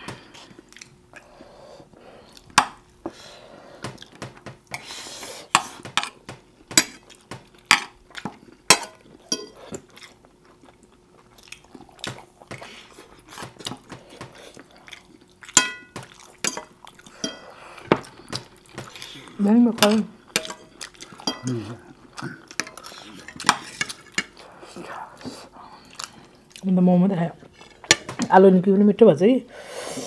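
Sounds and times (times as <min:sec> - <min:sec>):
chewing and mouth sounds: 0:00.2 - 0:01.4, 0:07.0 - 0:19.4, 0:20.2 - 0:26.7.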